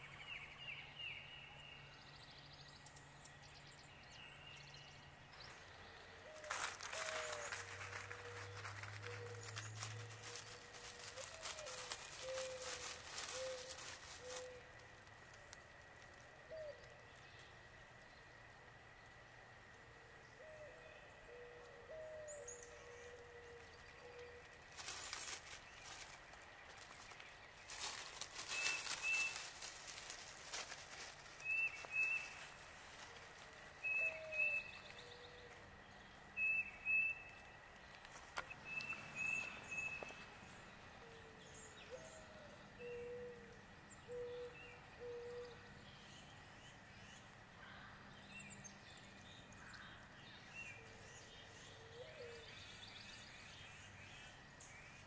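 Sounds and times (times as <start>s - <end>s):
lower bird calls: 5.4s - 17.6s, 20.1s - 48.5s
rustling: 6.3s - 16.3s, 23.8s - 35.1s.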